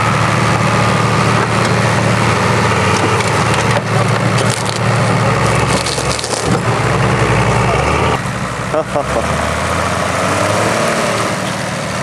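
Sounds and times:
off-road vehicle engine running: 0:00.0 - 0:12.0
car bodywork crunching: 0:02.9 - 0:06.7.

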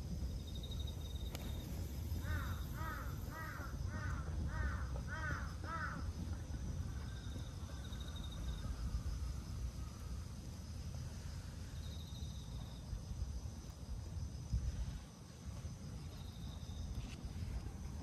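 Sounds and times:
low outdoor rumble: 0:00.0 - 0:18.0
crow cawing: 0:02.2 - 0:06.1.

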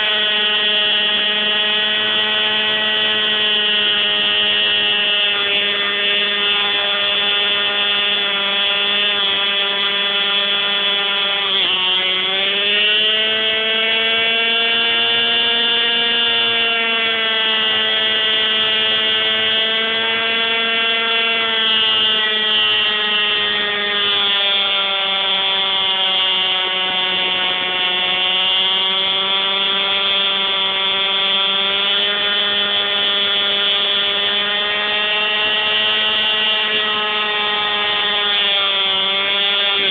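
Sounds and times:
model helicopter engine whine: 0:00.0 - 0:39.9.

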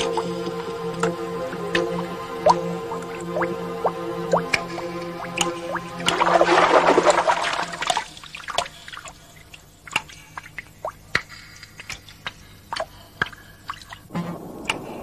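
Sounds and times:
music: 0:00.0 - 0:10.4.

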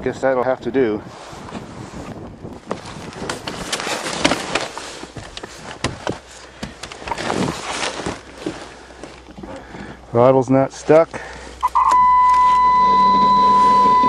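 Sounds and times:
rustling: 0:01.1 - 0:09.8
clicks and knocks in a car: 0:02.6 - 0:08.6.

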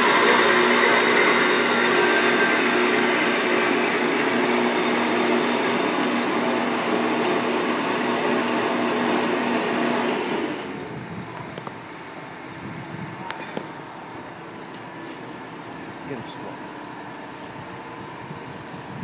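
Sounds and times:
bandsaw cutting metal pipe: 0:00.0 - 0:10.7.

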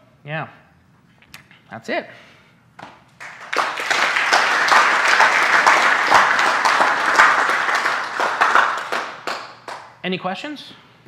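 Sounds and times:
audience applauding: 0:03.2 - 0:09.9.

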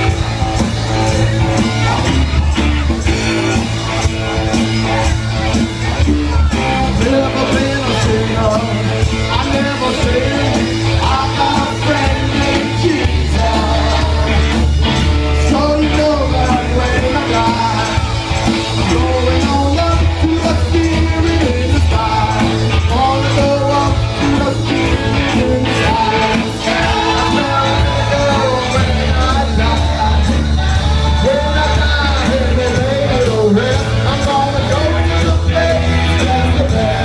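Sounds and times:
live rock band playing: 0:00.0 - 0:37.0
man singing: 0:04.4 - 0:37.0.

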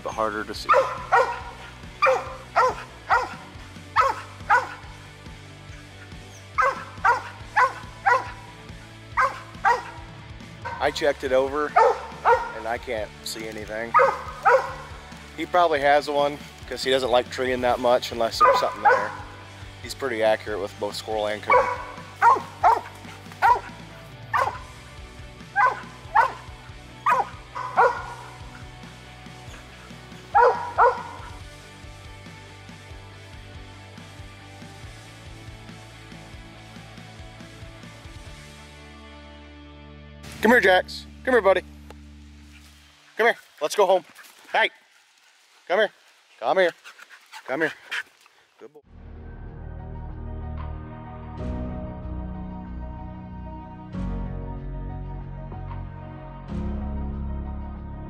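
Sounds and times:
dog barking: 0:00.6 - 0:04.9, 0:06.6 - 0:08.5, 0:09.2 - 0:11.0, 0:11.7 - 0:12.7, 0:13.9 - 0:15.0, 0:18.4 - 0:19.4, 0:21.4 - 0:24.7, 0:25.5 - 0:28.6, 0:29.5 - 0:31.4.

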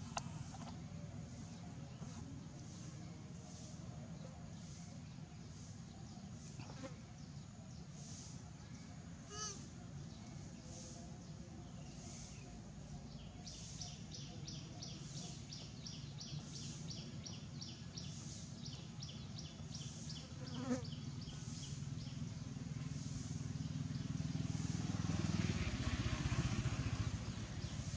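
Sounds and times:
buzz: 0:20.4 - 0:21.0.

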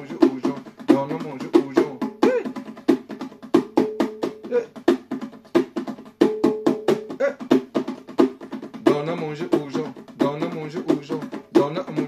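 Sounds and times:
bongos played by hand: 0:00.0 - 0:12.0.

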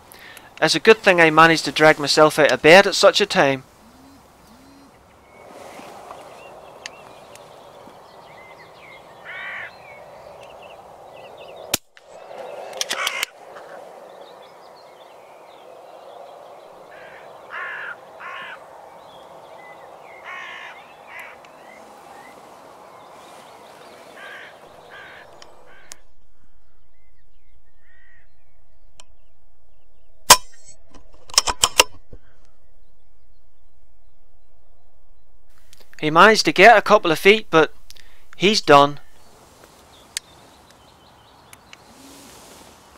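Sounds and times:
crows cawing: 0:09.2 - 0:10.0, 0:12.7 - 0:13.8, 0:16.8 - 0:19.2, 0:19.9 - 0:22.3, 0:23.9 - 0:26.5, 0:27.8 - 0:28.4
steady hiss: 0:41.6 - 0:42.9.

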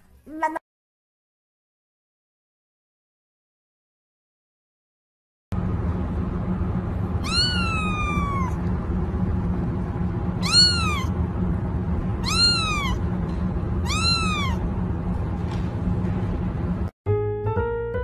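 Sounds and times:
steady low hum: 0:05.5 - 0:16.9
kitten meowing: 0:07.2 - 0:08.6, 0:10.4 - 0:11.1, 0:12.2 - 0:13.0, 0:13.8 - 0:14.6.

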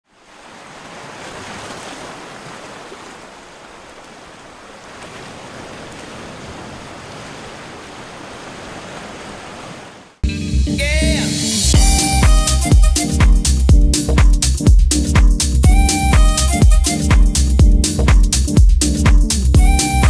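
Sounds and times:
sea water sloshing and lapping: 0:00.0 - 0:10.2.

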